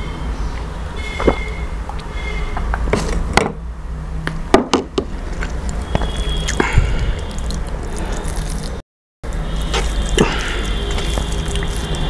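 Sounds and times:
sipping juice: 5.2s - 12.0s
fingers squishing food: 5.4s - 12.0s.

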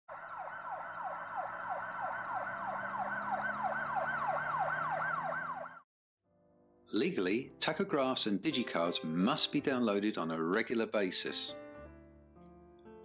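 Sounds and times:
siren yelping: 0.1s - 5.8s.

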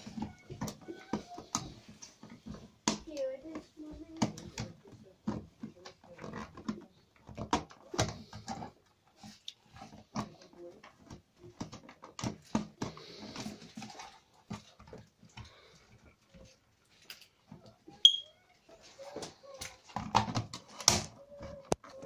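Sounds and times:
plastic clicks and knocks: 0.0s - 8.8s, 19.2s - 22.0s
plastic scraping on plastic: 0.0s - 22.0s.

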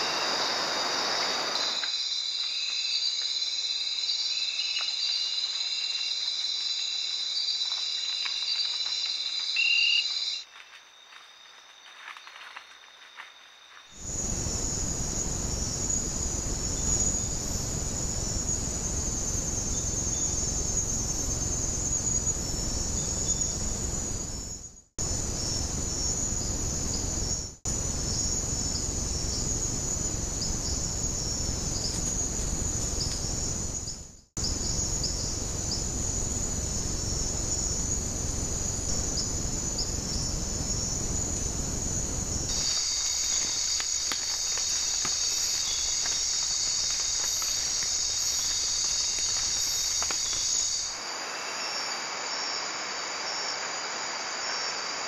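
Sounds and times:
low hiss: 0.0s - 2.5s
night insects chorus: 0.0s - 55.0s.

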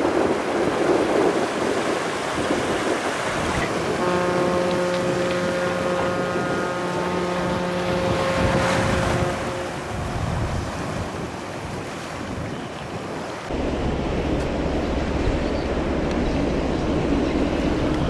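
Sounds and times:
waves rushing: 0.0s - 18.0s
wind noise on microphone: 0.0s - 18.0s
ship droning hum: 0.1s - 11.3s, 13.5s - 18.0s
deep steady rumble: 13.5s - 18.0s.

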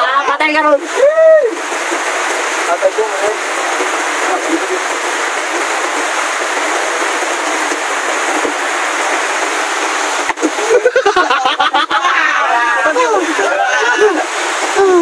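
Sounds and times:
heavy rain hissing: 0.0s - 15.0s
voices: 10.5s - 15.0s.

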